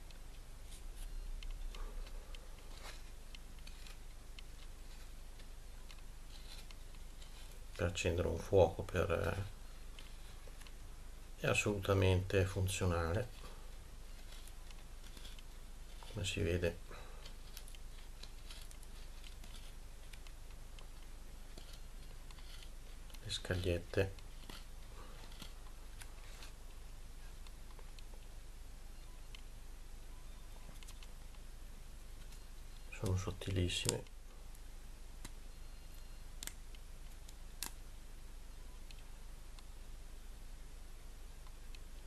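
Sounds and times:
knife shaving wooden stick: 0.0 - 28.3.

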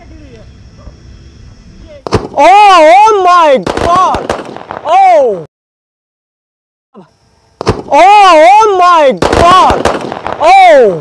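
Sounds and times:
firework shells cracking: 2.0 - 2.4, 3.6 - 4.9, 7.6 - 8.0, 9.1 - 10.6.

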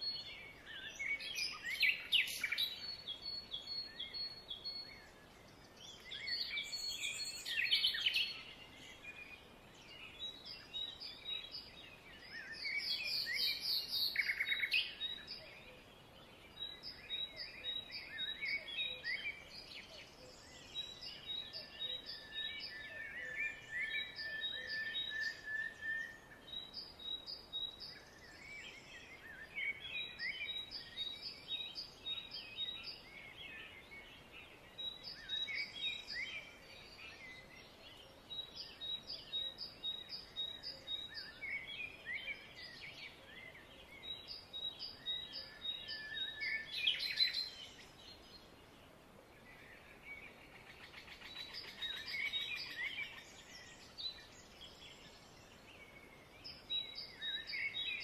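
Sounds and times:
soft outdoor background noise: 0.0 - 58.0
songbirds singing: 0.0 - 58.0
long held bird whistle: 22.9 - 26.2.

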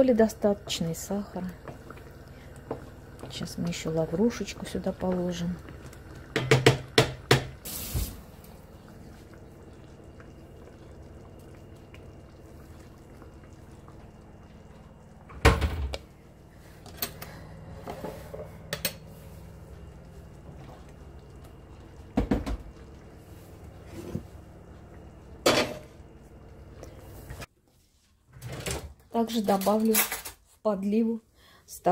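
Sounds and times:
clicks of pans and utensils: 17.9 - 19.0, 29.3 - 30.4.

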